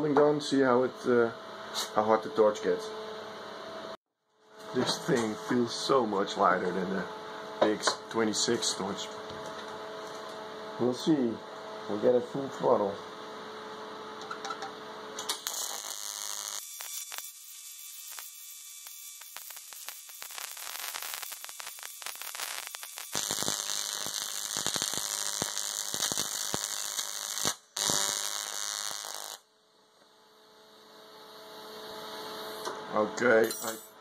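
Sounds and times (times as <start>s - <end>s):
welding arc buzzing and crackling: 14.1s - 32.7s.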